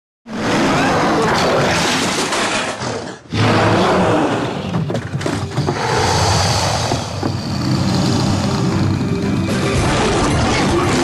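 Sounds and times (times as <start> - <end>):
deep rumbling creature growl: 0.3 - 11.0.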